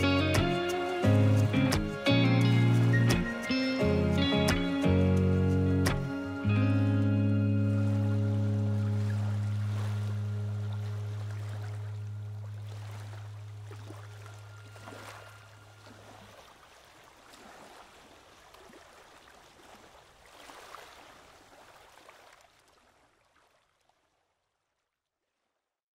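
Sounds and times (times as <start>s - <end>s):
low steady hum: 5.0s - 16.4s
small waves lapping: 7.3s - 25.6s.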